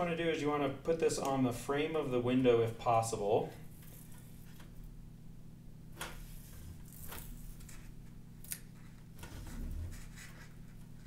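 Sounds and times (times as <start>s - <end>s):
steady low hum: 0.0s - 11.0s
tape crackling and rustling: 3.6s - 4.9s, 6.0s - 11.0s.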